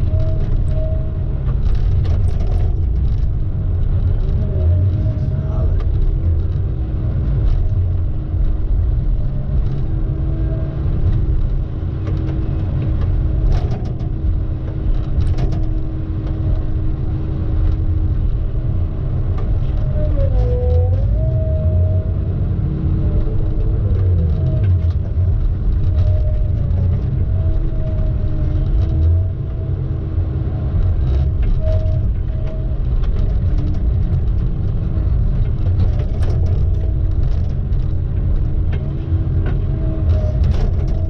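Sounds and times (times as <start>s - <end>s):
engine and road rumble: 0.0s - 41.0s.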